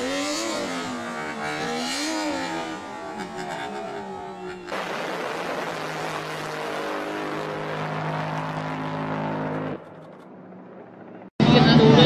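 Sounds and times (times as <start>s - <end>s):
speedboat engine at high revs: 0.0s - 8.2s.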